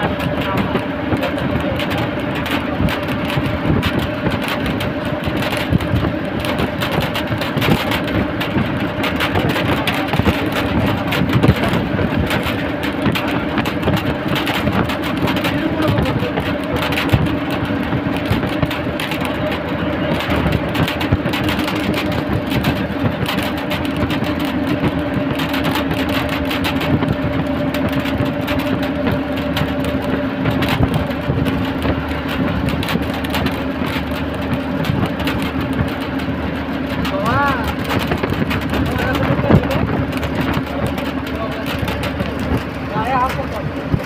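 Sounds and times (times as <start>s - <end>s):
bus body rattles and clicks: 0.0s - 44.0s
bus engine drone: 0.0s - 44.0s
road and wind rumble: 0.0s - 44.0s.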